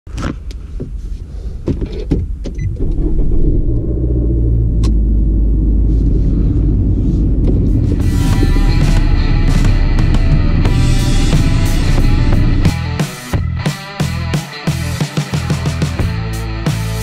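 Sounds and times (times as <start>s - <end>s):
low engine rumble: 0.5s - 13.6s.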